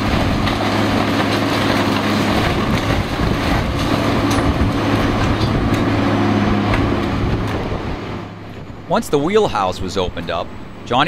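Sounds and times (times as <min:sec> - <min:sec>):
wood cracking and breaking: 0:00.0 - 0:06.0
excavator diesel engine running: 0:00.0 - 0:11.0.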